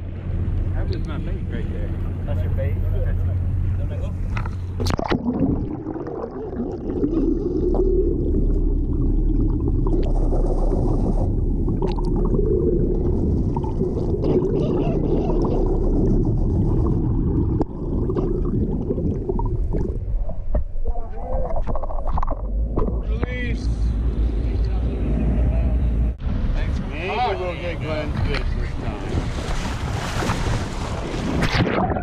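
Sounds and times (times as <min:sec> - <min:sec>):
underwater rumble and gurgling: 0:00.0 - 0:27.0, 0:28.0 - 0:32.0
sharp splash: 0:29.1 - 0:32.0.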